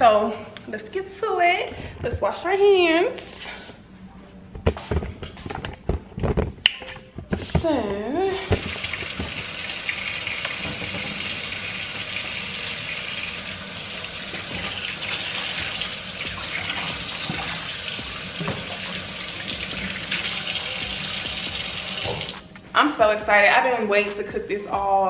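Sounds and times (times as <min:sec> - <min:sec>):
faucet running into steel sink: 0:08.3 - 0:22.4.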